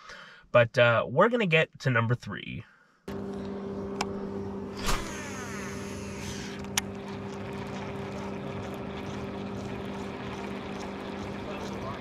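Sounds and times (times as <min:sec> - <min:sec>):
fishing line cast swish: 0:04.8 - 0:05.2.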